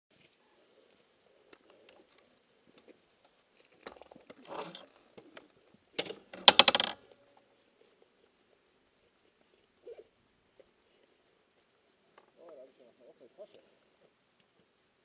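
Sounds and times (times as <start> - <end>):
soft rustle: 0.1 - 6.4, 7.0 - 15.0
rapid plastic clicking and rattling: 3.9 - 7.0.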